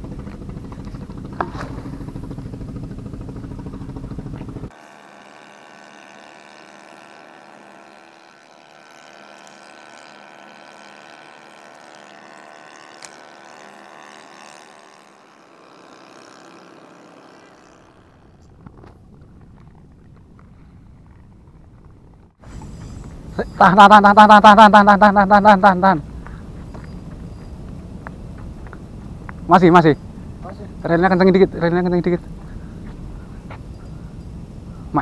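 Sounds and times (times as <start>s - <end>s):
engine droning: 0.0s - 35.0s
quiet hum of held tones: 17.2s - 35.0s.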